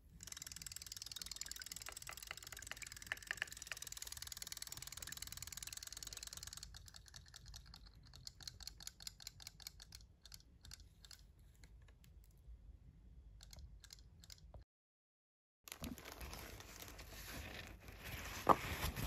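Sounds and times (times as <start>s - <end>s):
faint rapid small clicks: 0.2s - 12.4s.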